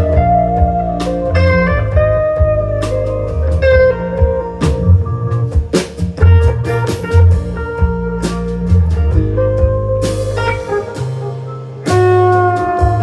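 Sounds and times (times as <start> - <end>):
electric guitar lines: 0.0 - 13.0
low bass notes: 0.0 - 13.0.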